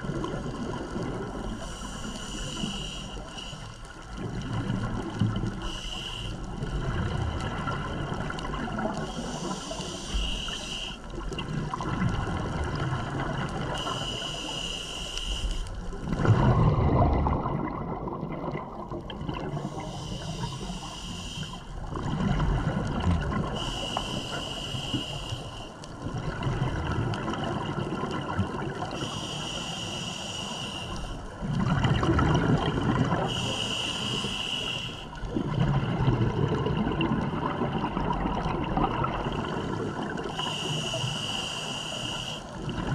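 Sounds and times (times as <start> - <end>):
hissing regulator inhalations: 1.4 - 3.9, 5.6 - 6.6, 8.9 - 11.1, 13.7 - 15.8, 19.6 - 21.7, 23.4 - 25.8, 28.9 - 31.3, 33.2 - 35.2, 39.5 - 42.6
exhaled bubbles gushing: 4.1 - 5.7, 6.4 - 14.2, 15.8 - 20.8, 21.8 - 23.7, 26.0 - 29.1, 31.3 - 33.5, 35.2 - 40.8, 42.5 - 42.9.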